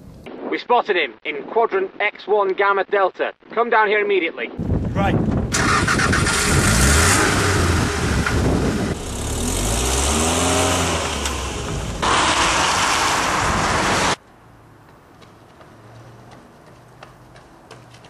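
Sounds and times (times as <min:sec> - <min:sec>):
car driving away: 0:05.6 - 0:14.2
car engine revving: 0:05.6 - 0:14.2.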